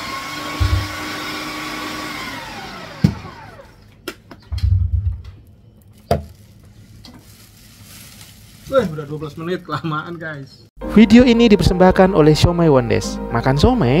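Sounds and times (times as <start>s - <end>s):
motor whining and winding down: 0.0s - 3.9s.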